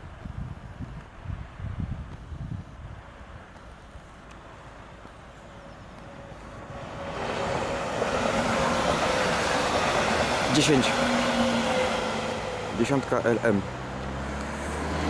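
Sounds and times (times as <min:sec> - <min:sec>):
train wheels rushing on rail: 0:04.3 - 0:15.0.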